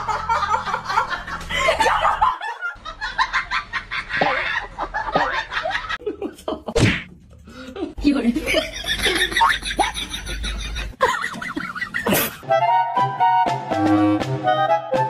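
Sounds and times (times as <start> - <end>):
people laughing: 0.0 - 6.8, 7.8 - 12.4.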